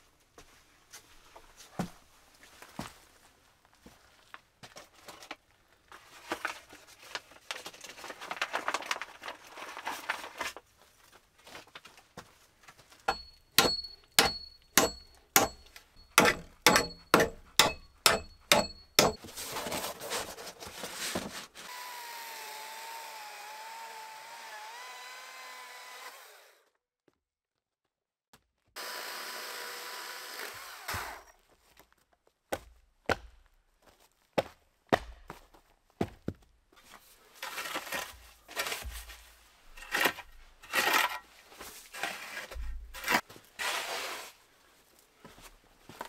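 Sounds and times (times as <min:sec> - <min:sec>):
chainsaw cutting a log: 0:13.1 - 0:15.6, 0:21.7 - 0:26.6, 0:28.8 - 0:31.3
hatchet striking a log: 0:13.1 - 0:19.2, 0:32.6 - 0:33.4, 0:34.9 - 0:35.4.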